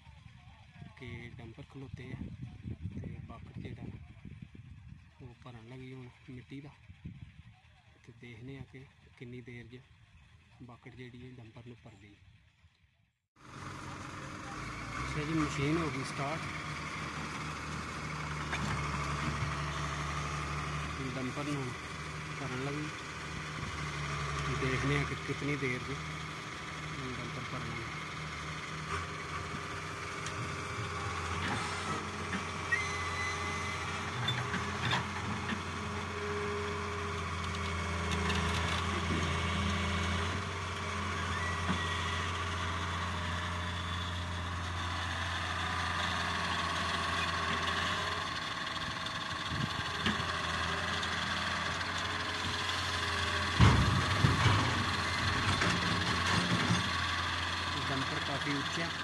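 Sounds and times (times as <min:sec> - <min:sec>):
excavator diesel engine: 0:13.4 - 0:59.0
hydraulic whine: 0:13.4 - 0:59.0.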